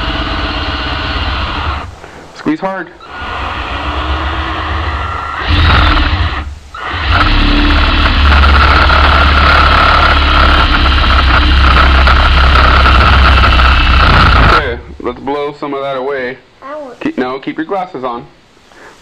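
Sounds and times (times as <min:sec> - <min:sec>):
cordless drill whining: 0:00.0 - 0:02.0, 0:03.0 - 0:14.8.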